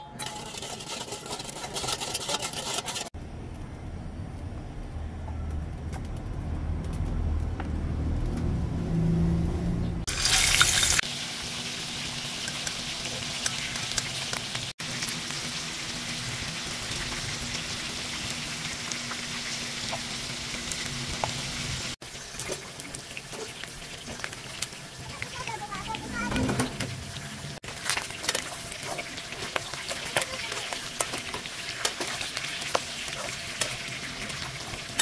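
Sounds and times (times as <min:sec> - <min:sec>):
pork sizzling in hot oil: 0:10.0 - 0:35.0
oil popping and crackling: 0:10.1 - 0:26.2, 0:27.0 - 0:35.0.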